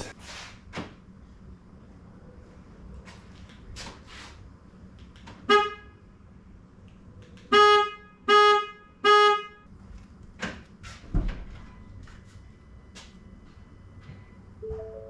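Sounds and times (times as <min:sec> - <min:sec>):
car horn honking: 0:05.5 - 0:05.9, 0:07.5 - 0:09.7.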